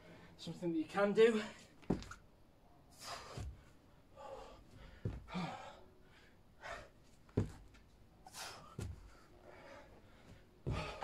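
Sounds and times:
man breathing hard: 2.9 - 7.1, 8.2 - 11.0.

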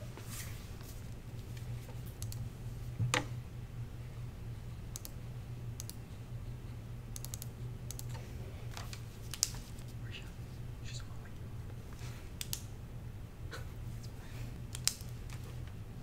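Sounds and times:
steady low hum: 0.0 - 16.0
laptop keyboard keystrokes: 7.2 - 8.2, 14.7 - 15.4.

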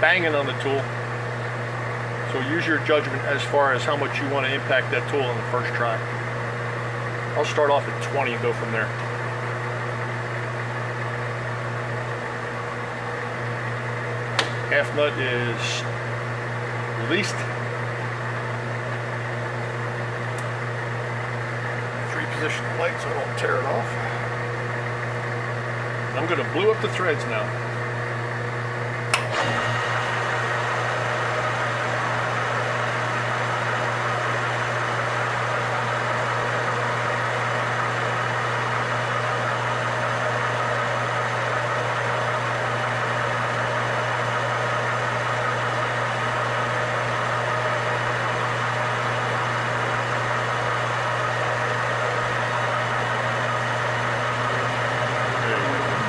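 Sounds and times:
metal lathe humming: 0.0 - 56.0.

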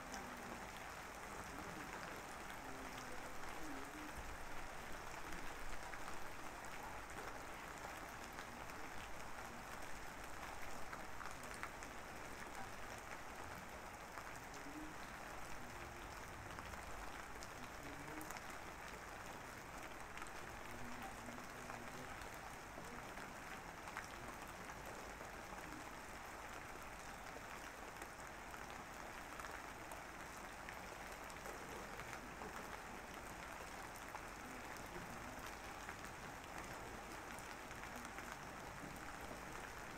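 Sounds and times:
rain-like crackling patter: 0.0 - 39.9.

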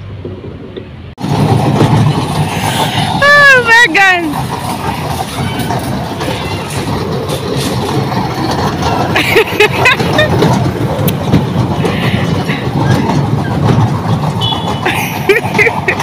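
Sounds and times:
ride-on train wheels and motor rumbling: 0.0 - 16.0
high squeaks: 4.6 - 8.1.

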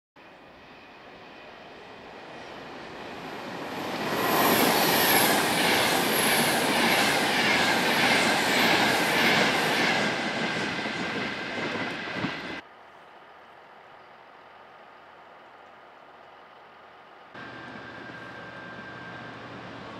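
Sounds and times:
train wheels rushing on rail: 0.2 - 12.6
high wheel squeals: 17.4 - 19.9.

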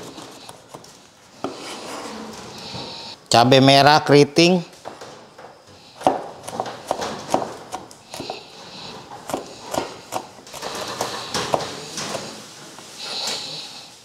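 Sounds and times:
knife chopping on wooden board: 6.0 - 8.4.

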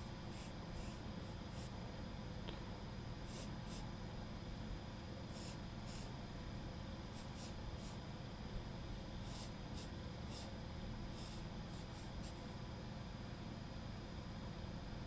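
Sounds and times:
low room hum: 0.0 - 15.0
pencil scratching on paper: 0.3 - 1.8, 5.3 - 6.1, 7.1 - 8.0, 9.2 - 12.4.

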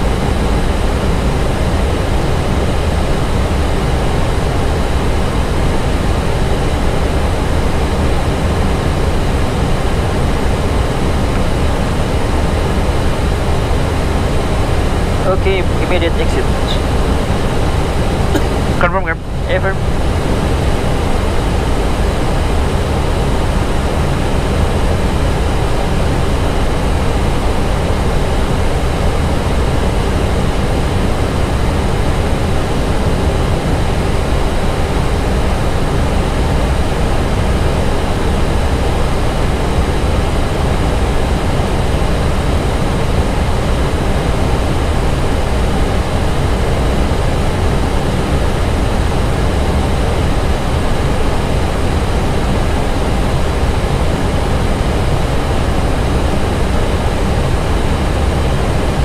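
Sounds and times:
airplane cockpit rushing noise: 0.0 - 59.0.

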